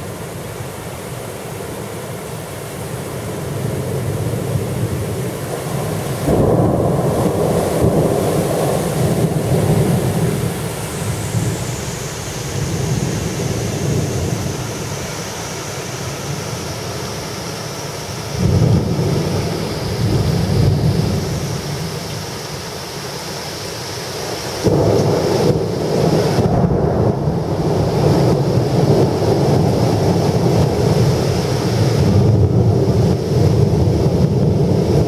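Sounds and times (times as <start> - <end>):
steady rain: 0.0 - 35.0
thunder rumbling: 3.4 - 15.0, 18.3 - 22.3, 24.5 - 35.0.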